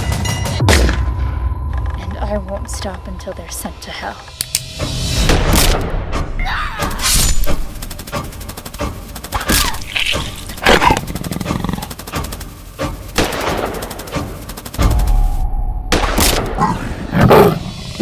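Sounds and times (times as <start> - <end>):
dramatic music: 0.0 - 18.0
rapid ticking hits: 7.4 - 15.4.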